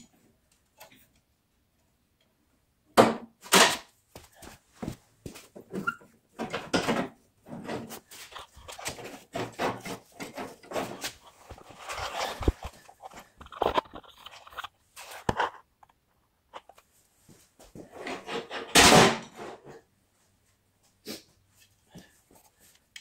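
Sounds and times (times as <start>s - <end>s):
clicks and knocks of handling: 6.4s - 16.9s.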